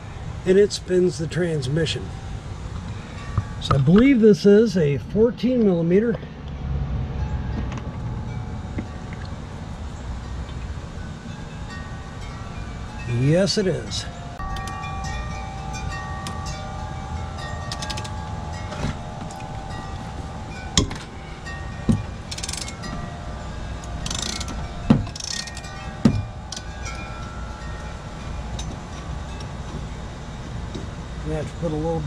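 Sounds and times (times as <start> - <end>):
wind chimes ringing: 0.0 - 32.0
sharp metal knocks: 14.4 - 29.9
socket ratchet clicking: 17.7 - 18.1, 22.3 - 22.9, 24.0 - 26.7.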